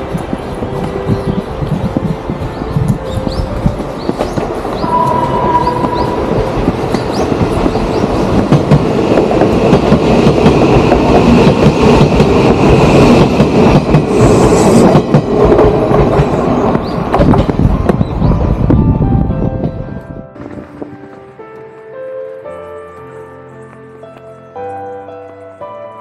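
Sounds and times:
high wheel squeal: 4.8s - 7.3s
train wheels clattering over rail joints: 14.8s - 18.3s.

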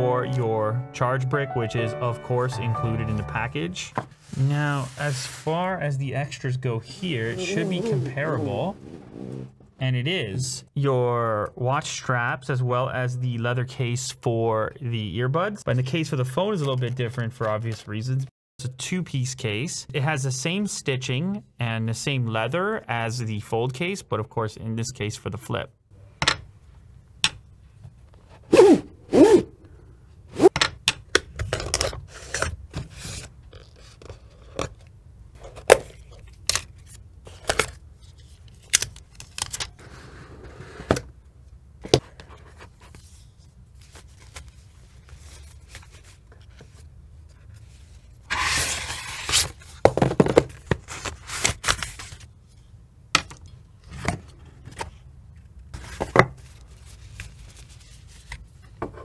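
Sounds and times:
cardboard scraping: 4.0s - 5.6s, 6.9s - 9.7s, 48.3s - 52.2s
cardboard boxes tapping and knocking: 49.8s - 50.8s.

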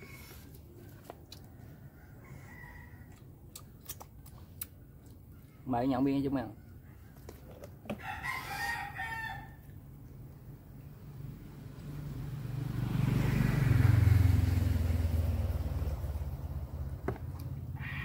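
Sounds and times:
rooster crowing: 1.5s - 3.3s, 6.6s - 9.7s.

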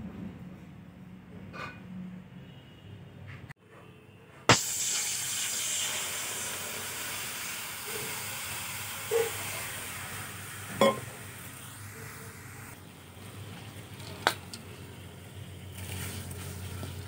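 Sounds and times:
water pouring into metal wok: 4.6s - 11.6s.

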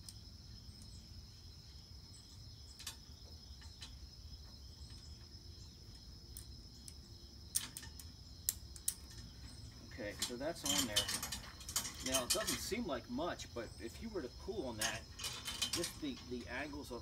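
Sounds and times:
insect chorus: 0.0s - 17.0s
metal chain clinks: 10.2s - 12.6s, 14.8s - 16.2s.

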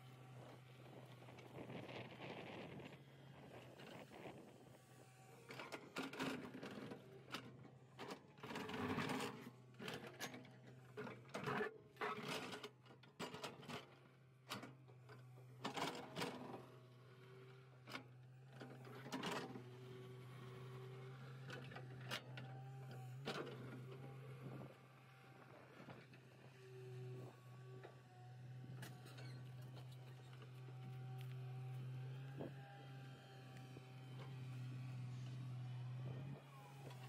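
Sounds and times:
excavator engine humming: 18.3s - 37.0s.

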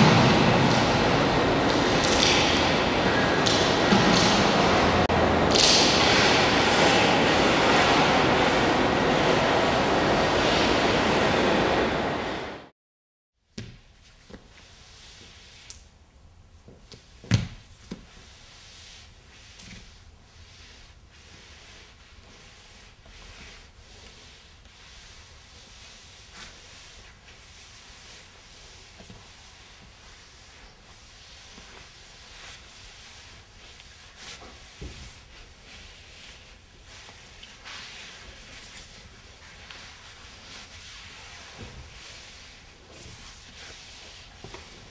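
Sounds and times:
heavy thump: 0.0s - 2.5s
soft scuffing on floor: 16.7s - 44.9s.

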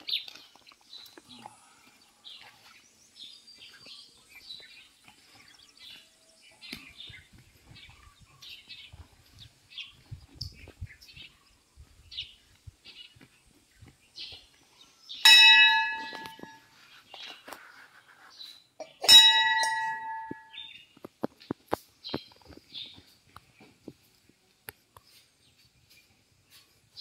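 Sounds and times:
small birds chirping: 0.0s - 27.0s
brass bell ringing: 15.2s - 16.7s, 19.0s - 20.6s.

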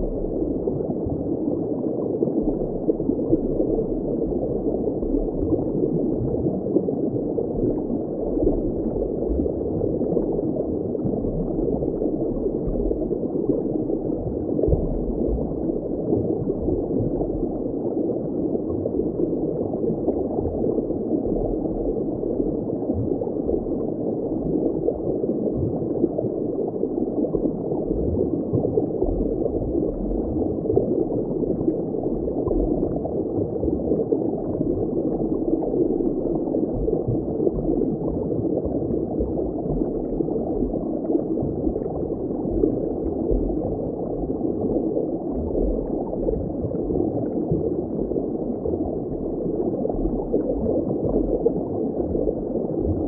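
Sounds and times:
muffled water bubbling rush: 0.0s - 53.0s.

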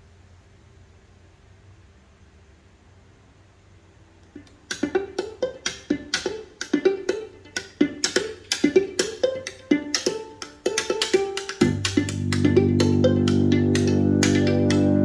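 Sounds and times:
percussive music from speaker: 4.4s - 15.0s.

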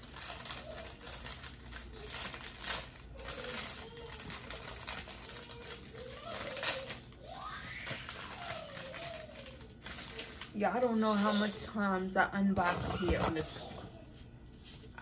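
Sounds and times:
packaging rustling and clicking: 0.0s - 7.2s, 7.8s - 11.6s.

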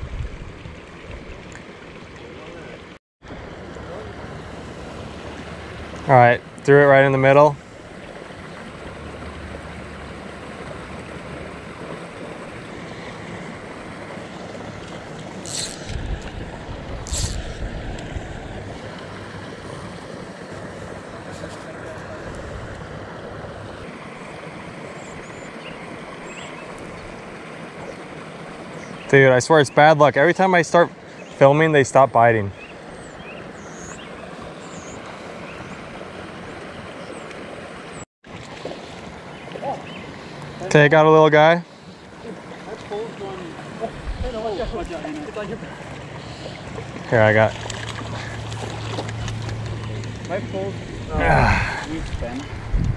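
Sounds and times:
wind blowing across microphone: 0.0s - 1.5s, 15.4s - 18.9s, 43.9s - 45.1s, 49.3s - 52.9s.

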